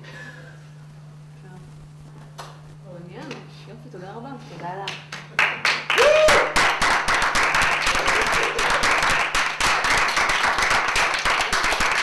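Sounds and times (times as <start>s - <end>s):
people clapping: 4.8s - 12.0s.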